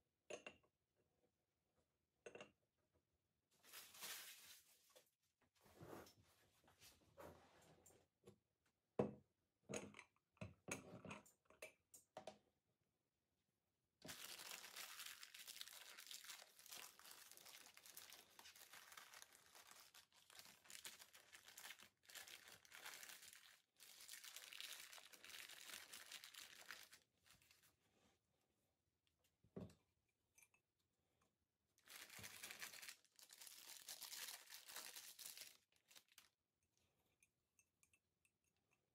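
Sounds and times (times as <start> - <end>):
plastic bag crinkling: 3.7 - 4.7, 14.0 - 27.6, 31.8 - 36.3.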